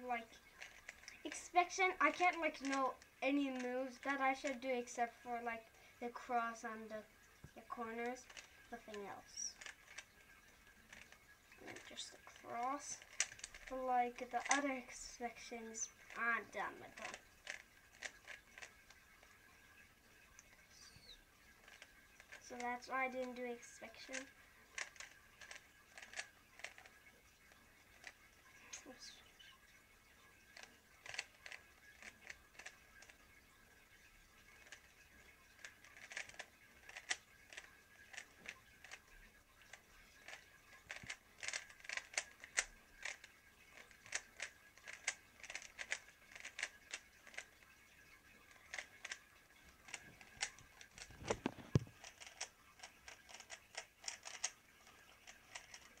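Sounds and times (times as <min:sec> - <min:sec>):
puzzle cube clicking: 0:10.9 - 0:19.0, 0:20.4 - 0:27.0, 0:30.6 - 0:33.2, 0:35.6 - 0:39.0, 0:40.2 - 0:47.6, 0:48.5 - 0:54.6, 0:55.2 - 0:56.0.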